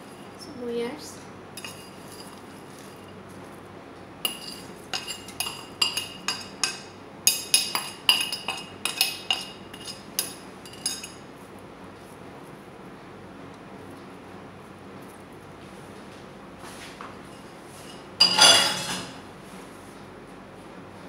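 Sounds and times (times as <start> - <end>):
spoon clinking against bowl: 1.6 - 3.2, 4.2 - 11.2, 17.9 - 19.1.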